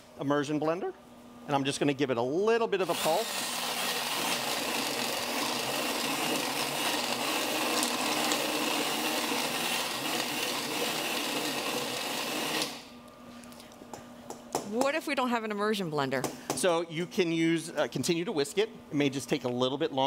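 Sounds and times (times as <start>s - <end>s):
immersion blender whirring in soup: 2.8s - 12.9s.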